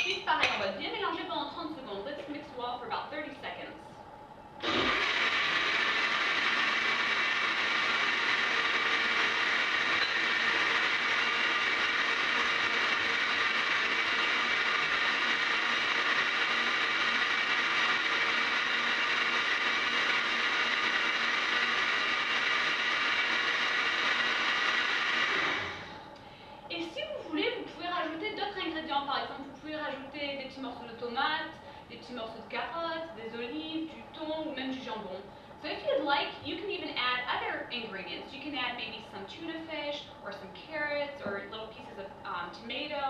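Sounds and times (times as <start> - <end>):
blender motor running: 4.6 - 26.0.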